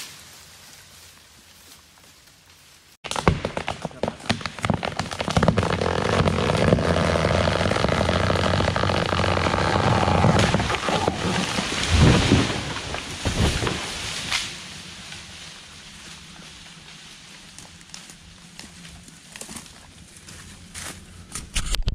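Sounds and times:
branches rushing: 0.0s - 21.1s
wood cracking: 3.0s - 15.2s
tree crashing into ground: 3.1s - 14.8s.

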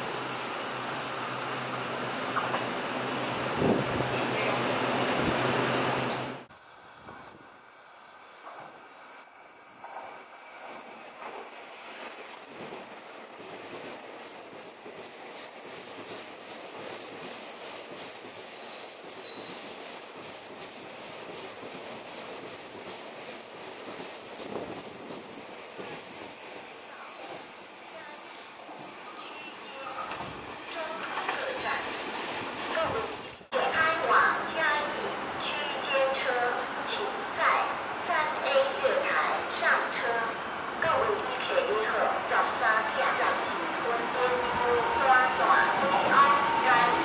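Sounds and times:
train wheels rumbling on rails: 8.0s - 33.5s.

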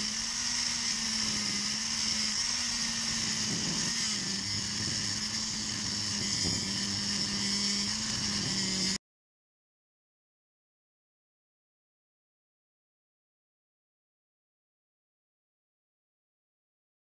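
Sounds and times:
angle grinder cutting steel: 0.0s - 9.0s.

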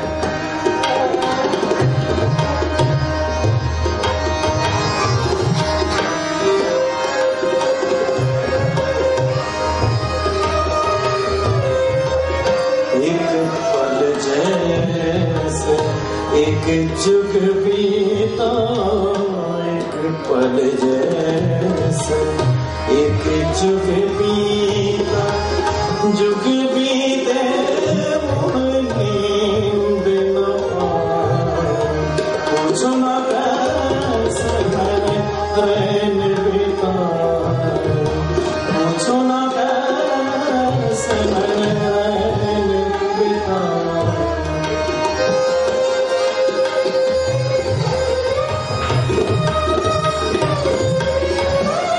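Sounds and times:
harmonium: 0.0s - 51.9s
tabla playing rhythm: 0.0s - 51.9s
man singing: 12.8s - 48.5s.

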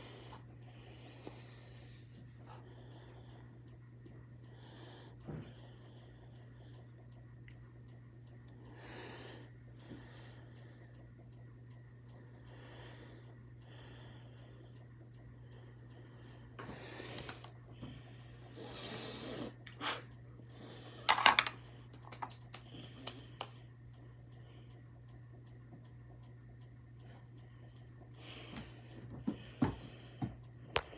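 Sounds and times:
steady low hum: 0.0s - 30.9s
clicks and knocks of makeup items: 21.1s - 22.4s.

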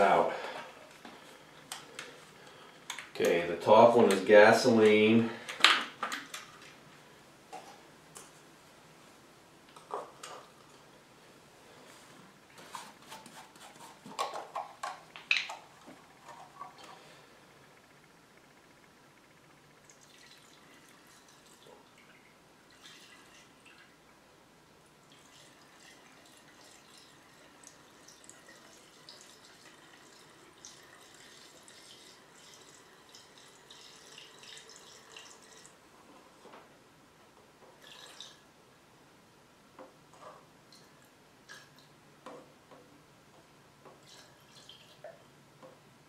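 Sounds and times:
fuel trickling into tank: 19.8s - 23.9s, 25.0s - 35.8s, 37.8s - 38.4s.

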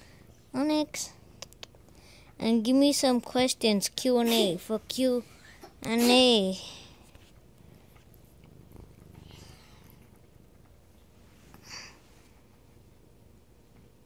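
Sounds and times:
cat purring: 7.6s - 11.5s.

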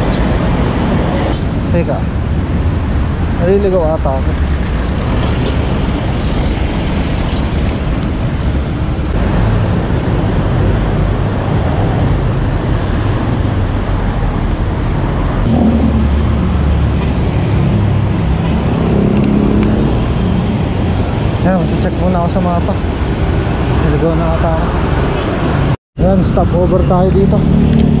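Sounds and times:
cars passing close: 0.0s - 28.0s
road traffic rushing: 0.0s - 28.0s
wind noise: 0.0s - 28.0s.

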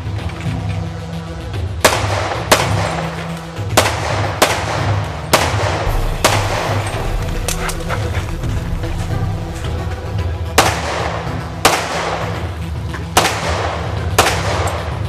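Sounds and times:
background music: 0.0s - 15.0s
pistol shots: 13.2s - 15.0s.

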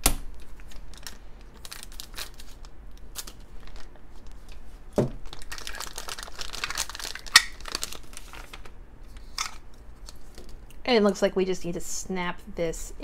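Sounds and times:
plastic bag crinkling: 0.3s - 10.6s.

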